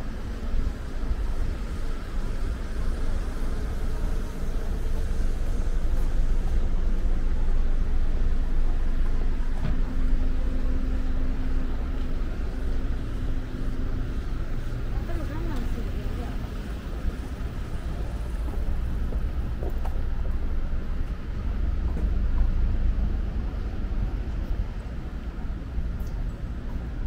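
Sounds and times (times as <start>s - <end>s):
steady droning tone: 0.0s - 19.5s
traffic rumble: 0.0s - 27.0s.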